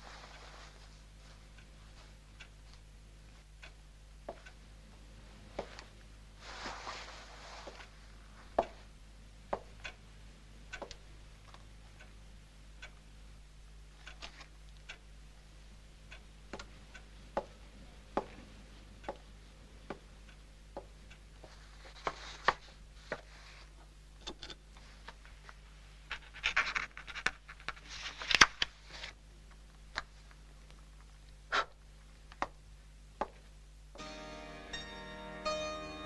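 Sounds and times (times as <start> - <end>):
faint steady hum: 0.0 - 36.0
scratchy noise: 6.4 - 7.9.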